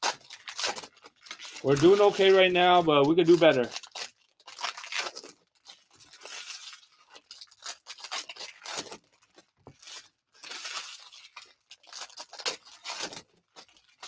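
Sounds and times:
foil wrappers crinkling and tearing: 0.0s - 14.0s
cards handled: 1.6s - 3.8s.

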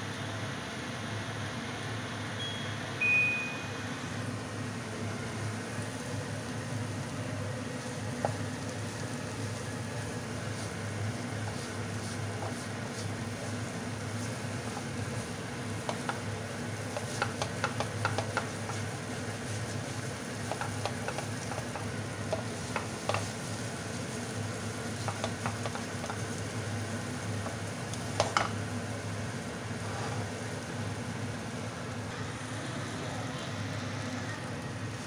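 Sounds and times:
steady low hum: 0.0s - 35.0s
soft sizzling: 4.6s - 35.0s
spatula tapping pan: 8.2s - 8.5s, 14.3s - 23.5s, 24.9s - 26.4s, 27.4s - 28.6s
spatula scraping frying pan: 29.8s - 30.3s.

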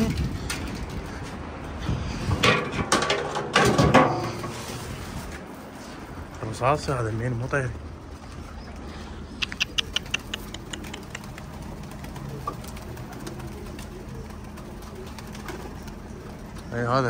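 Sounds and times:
pigeons cooing: 7.9s - 17.0s.

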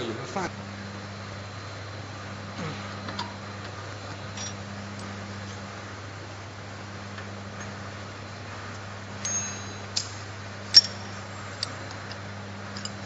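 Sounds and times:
steady low hum: 0.0s - 13.0s
metallic clinks of tool on steel: 9.2s - 12.2s.

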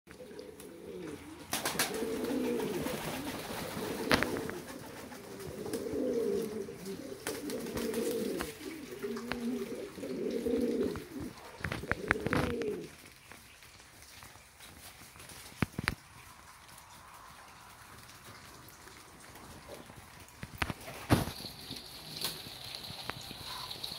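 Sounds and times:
pigeons cooing: 0.1s - 13.8s, 20.9s - 23.9s.

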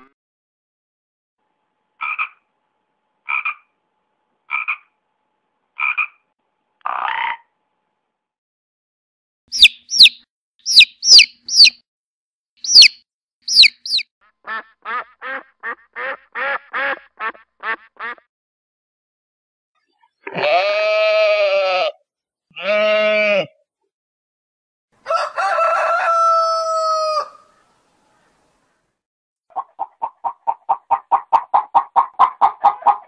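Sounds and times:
duck quacking: 2.0s - 2.4s, 3.3s - 3.7s, 4.5s - 4.9s, 5.8s - 6.2s, 13.5s - 18.3s, 29.5s - 33.0s
frog croaking: 2.0s - 2.4s, 3.3s - 3.7s, 4.5s - 4.9s, 5.8s - 6.2s.

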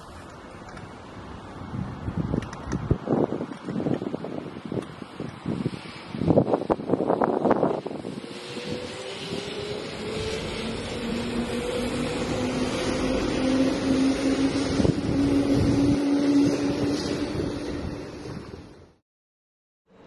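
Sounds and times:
train running noise: 0.0s - 19.0s
electric train motor whine: 7.5s - 18.8s.

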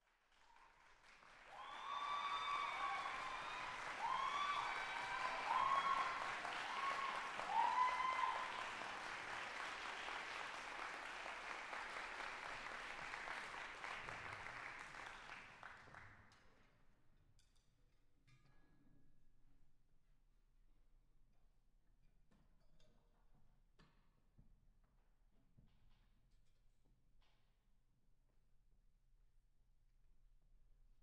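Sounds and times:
audience applauding: 0.0s - 16.0s
crowd cheering: 0.4s - 15.6s.

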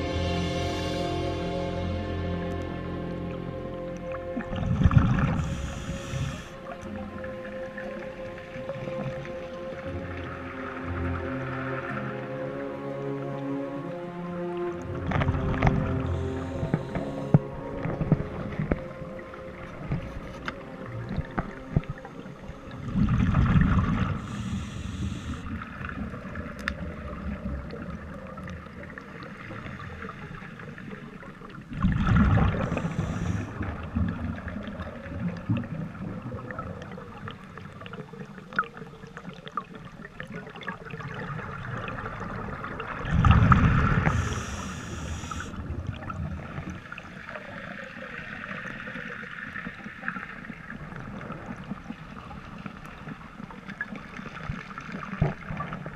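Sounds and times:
underwater exhaled bubbles rumbling: 3.1s - 12.2s, 14.8s - 55.9s
regulator hiss: 5.4s - 6.6s, 24.2s - 25.5s, 32.6s - 33.6s, 44.1s - 45.6s.

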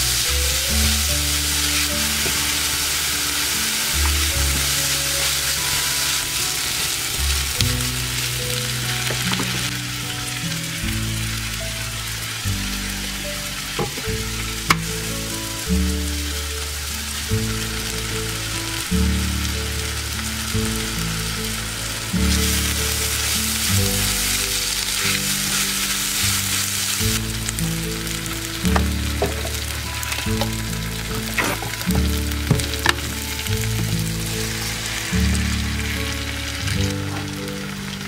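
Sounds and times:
onion sizzling in hot oil: 0.0s - 38.0s
spatula scraping a pan: 28.7s - 36.2s.

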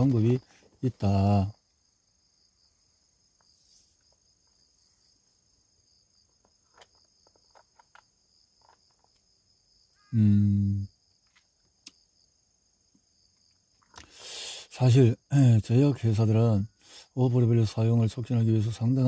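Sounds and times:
crickets trilling: 0.0s - 19.0s
person humming: 10.1s - 10.9s.

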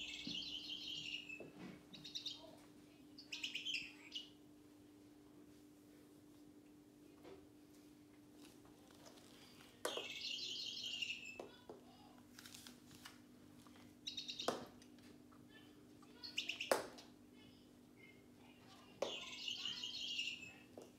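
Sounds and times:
toy ball electronic bird chirping: 0.0s - 2.5s, 9.9s - 11.6s, 14.0s - 14.7s, 16.3s - 16.9s, 19.0s - 20.7s
ball knocking on wooden floor: 9.8s - 10.2s.

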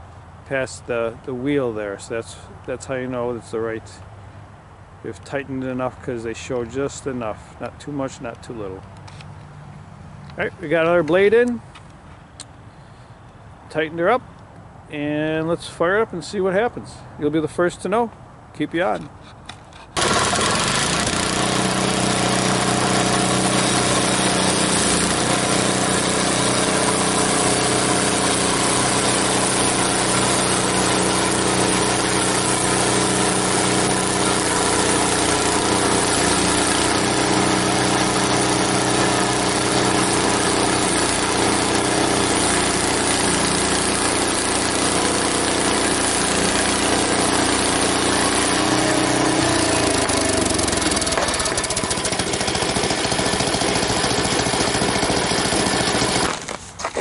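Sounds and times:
band saw blade cutting log: 18.8s - 57.0s
sawmill engine running: 19.9s - 57.0s.

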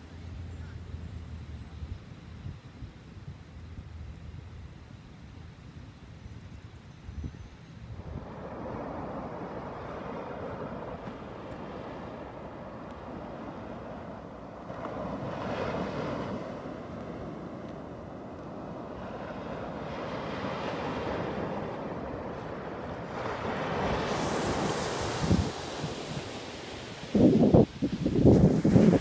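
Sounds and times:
small waves breaking on shore: 8.0s - 29.0s.

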